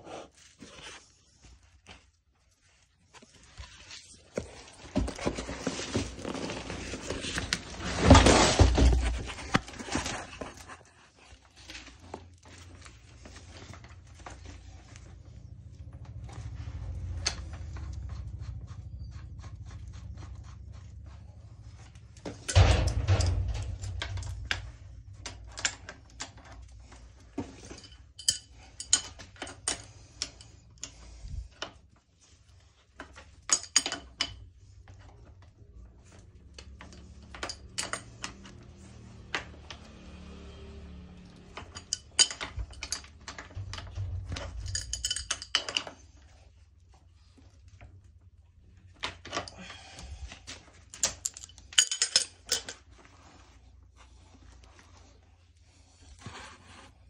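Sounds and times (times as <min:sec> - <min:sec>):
low handling rumble: 0:13.0 - 0:27.4, 0:38.3 - 0:45.6.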